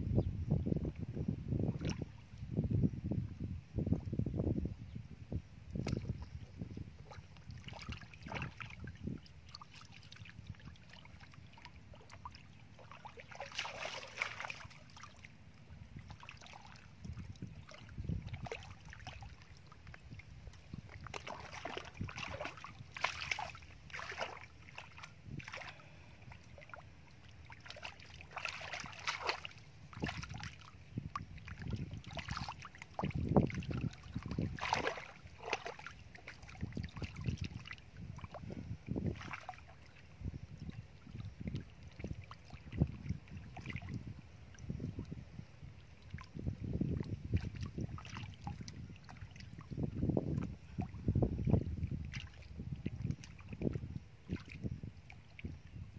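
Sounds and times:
hands splashing in muddy water: 12.9 - 15.1, 20.9 - 25.9, 27.5 - 30.6, 31.7 - 37.4.

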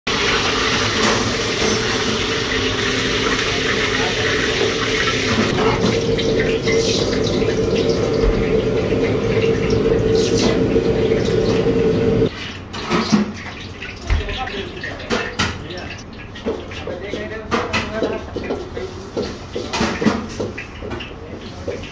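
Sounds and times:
gas burner rushing: 0.1 - 12.3.

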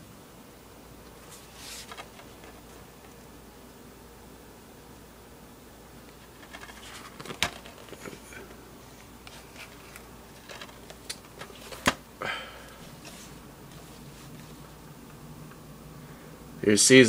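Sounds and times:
boxes rustling and sliding: 1.2 - 2.9, 6.2 - 12.0, 12.8 - 14.7.

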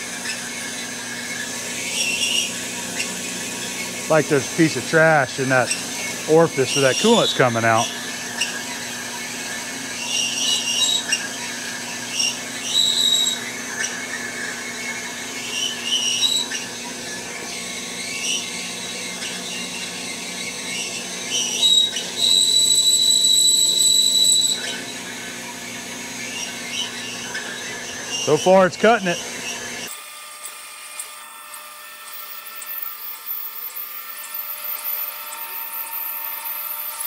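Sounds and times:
bandsaw machine hum: 0.0 - 37.0
high-pitched blade squeals: 20.7 - 24.9.

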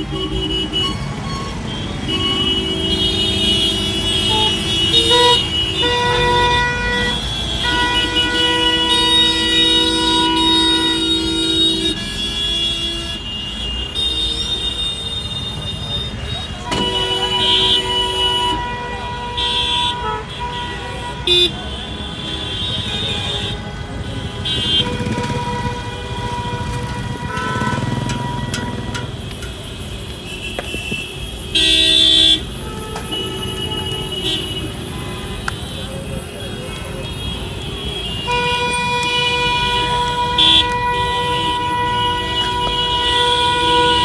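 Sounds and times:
road and fire noise: 0.0 - 44.0
car horn toots: 1.9 - 35.8, 36.6 - 44.0.

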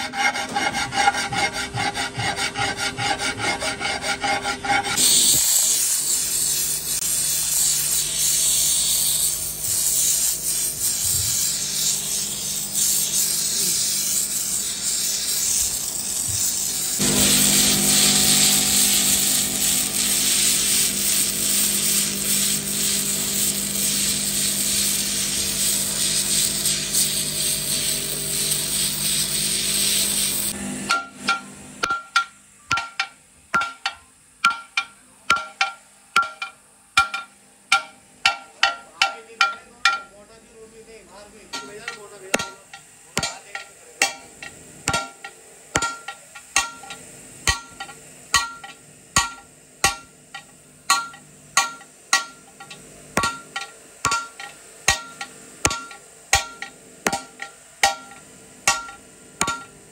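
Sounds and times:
hand file rasping on metal rim: 0.0 - 30.6
gas torch flame hissing: 5.0 - 30.6.

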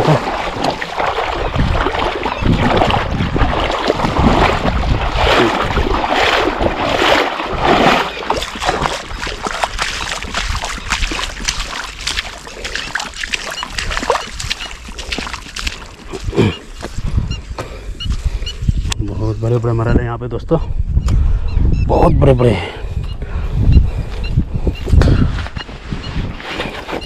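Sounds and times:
fish thrashing and splashing: 0.0 - 17.0
wind rumble on microphone: 0.0 - 27.0.

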